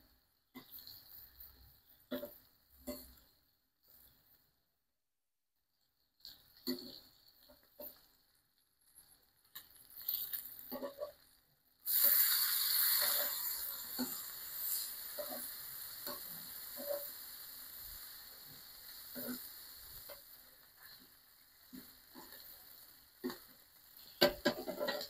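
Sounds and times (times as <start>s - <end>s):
bacon sizzling: 6.2s - 25.0s
metal tongs tapping on griddle: 24.2s - 25.0s.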